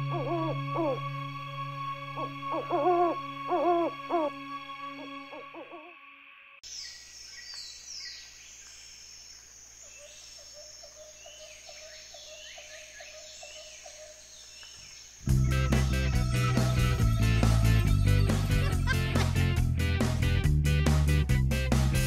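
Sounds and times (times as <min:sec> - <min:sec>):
cartoon owl hoot: 0:00.0 - 0:01.0, 0:02.2 - 0:04.4, 0:05.0 - 0:06.0
birds chirping: 0:06.6 - 0:18.6.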